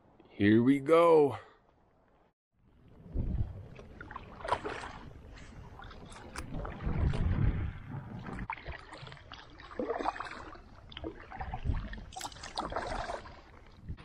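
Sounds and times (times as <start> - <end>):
canoe paddle splashing in water: 3.5 - 13.9.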